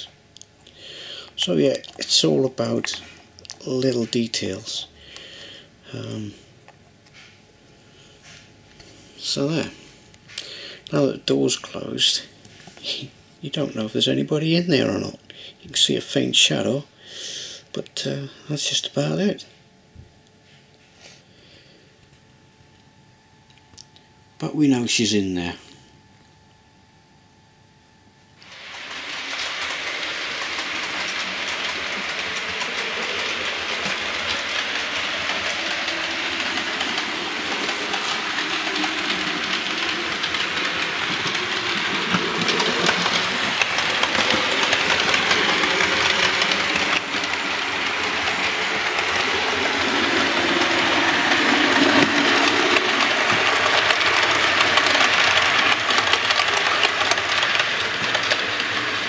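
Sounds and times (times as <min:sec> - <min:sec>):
model train wheels rolling on rails: 0:01.3 - 0:04.8, 0:28.4 - 0:59.0.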